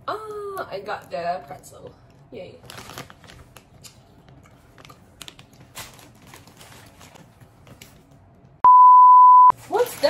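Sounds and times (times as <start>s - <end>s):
plastic candy bag crinkling: 2.6s - 3.9s, 4.7s - 7.4s.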